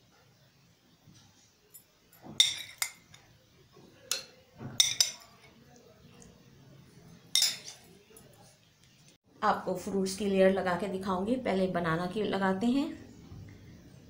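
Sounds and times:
metal spoon clinking on glass bowl: 1.7s - 3.2s, 4.1s - 5.5s, 7.3s - 7.9s.

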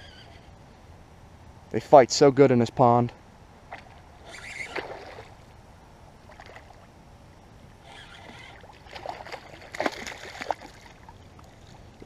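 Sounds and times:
fish splashing at water surface: 8.3s - 11.1s.

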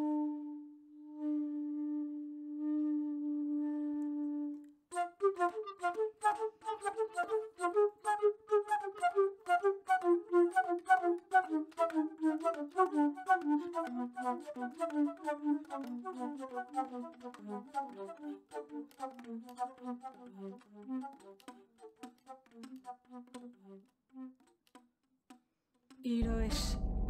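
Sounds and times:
flute playing: 0.0s - 21.5s.

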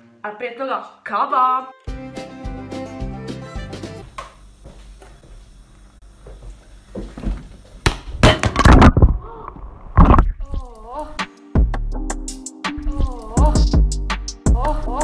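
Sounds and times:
object knocked over with bangs: 8.1s - 9.1s.

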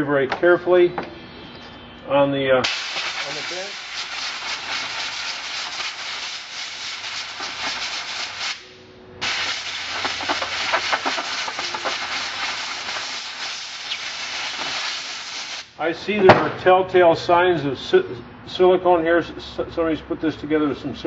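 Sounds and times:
compressed air blow gun hissing: 2.6s - 15.8s.

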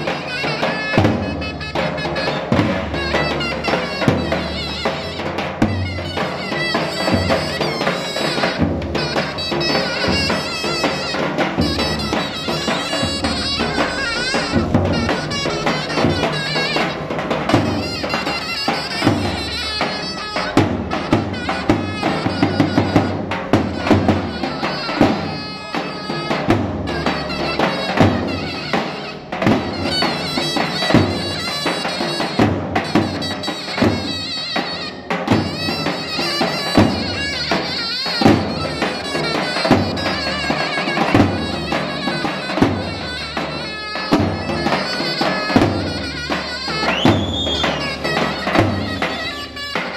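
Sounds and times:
shrill folk melody on reed pipe: 0.0s - 49.9s
bass drums beating: 11.5s - 19.5s.

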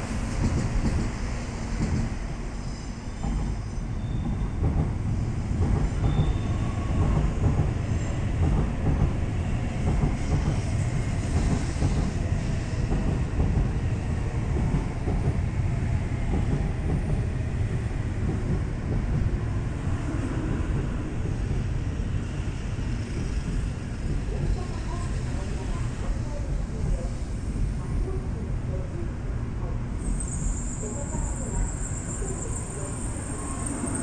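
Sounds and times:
train rumbling past on rails: 0.0s - 34.0s.

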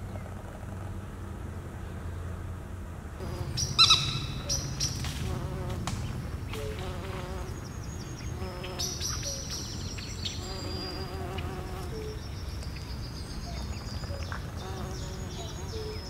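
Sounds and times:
insects buzzing: 3.2s - 16.0s.

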